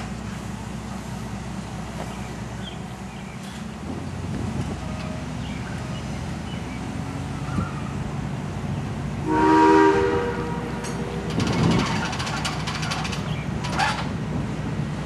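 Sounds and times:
steam whistle blast: 9.2 - 10.9.

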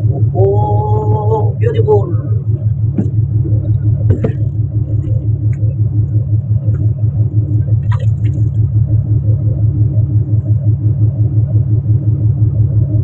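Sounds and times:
boat engine throbbing drone: 0.0 - 13.0
light knocks and clicks: 3.0 - 4.6.

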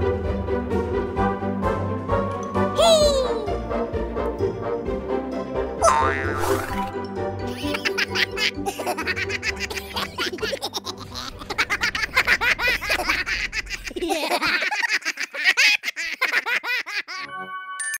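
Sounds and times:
background music: 0.0 - 18.0
cartoon voices giggling: 7.5 - 17.3.

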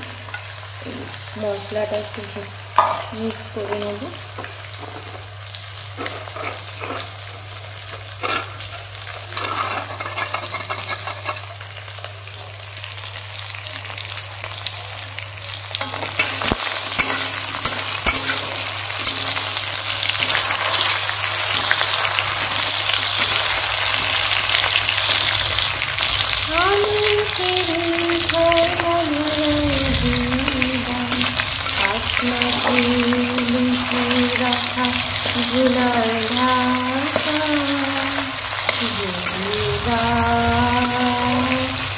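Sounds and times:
oil sizzling loudly: 0.0 - 41.9
metal spatula stirring in a pan: 8.2 - 11.6, 15.8 - 24.6.

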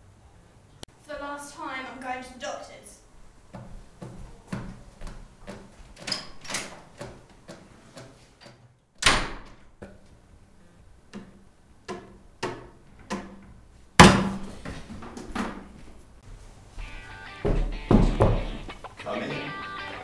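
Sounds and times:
footsteps on hard floor: 3.5 - 6.0, 14.4 - 18.8.

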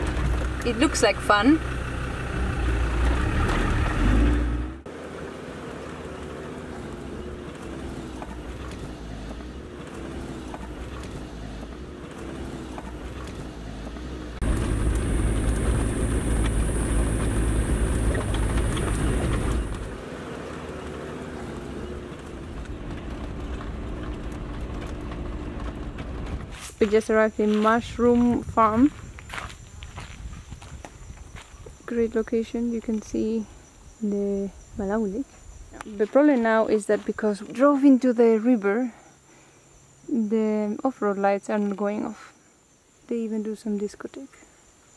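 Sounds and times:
vehicle engine on dirt road: 0.0 - 39.2.

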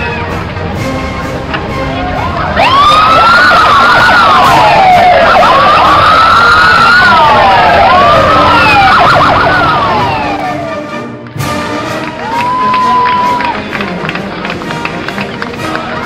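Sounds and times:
police motorcycle sirens wailing: 1.9 - 10.9.

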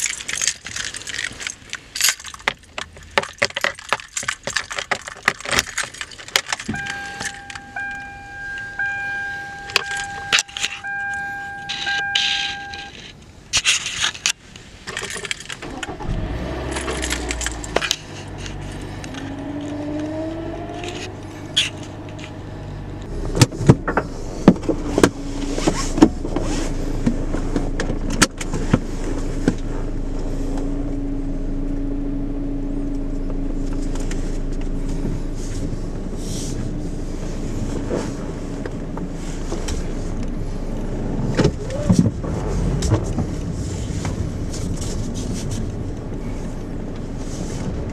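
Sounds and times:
car engine idling: 0.0 - 13.6, 14.4 - 47.9
car keys jangling: 0.0 - 22.4
dashboard chime: 6.7 - 13.0.

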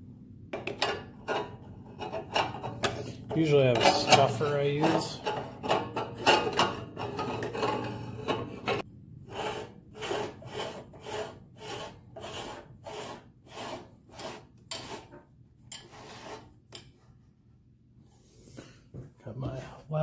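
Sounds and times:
metal threads rasping: 1.2 - 16.9.

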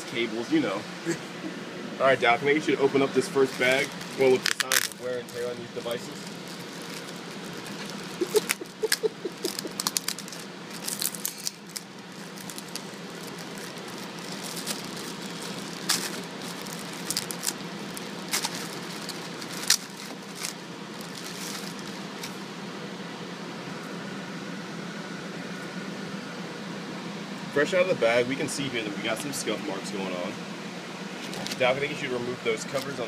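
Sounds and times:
low equipment hum: 0.0 - 33.0
plastic bag crinkling: 3.4 - 22.3.

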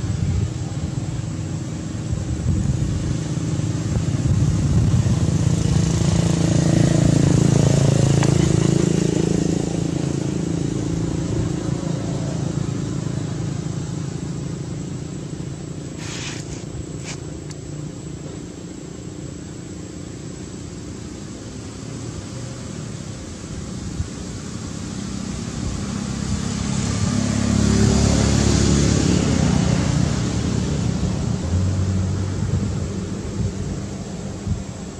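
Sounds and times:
vehicle engine passing: 0.0 - 17.2, 24.6 - 34.8.

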